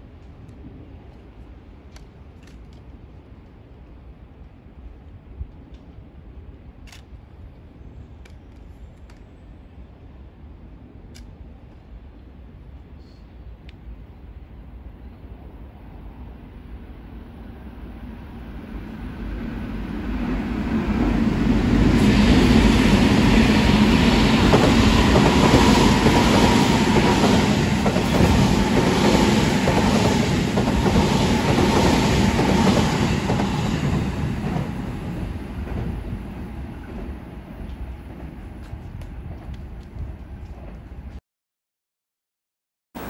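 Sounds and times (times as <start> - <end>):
train whine: 12.4 - 41.2
train wheels clacking: 22.0 - 36.1.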